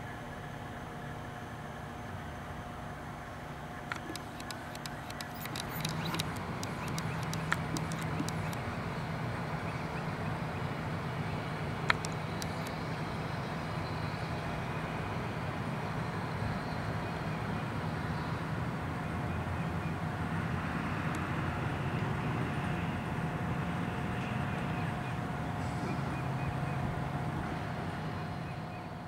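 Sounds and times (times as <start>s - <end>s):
distant road traffic: 0.0s - 29.0s
faint steady whine: 0.0s - 29.0s
sharp click: 3.9s - 8.6s, 11.9s - 12.8s.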